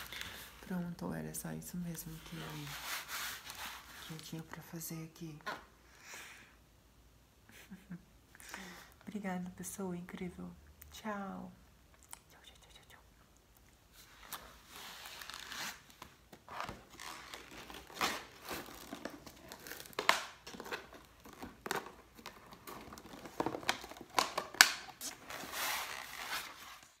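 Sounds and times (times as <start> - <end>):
plastic box crinkling and rustling: 15.1 - 27.0.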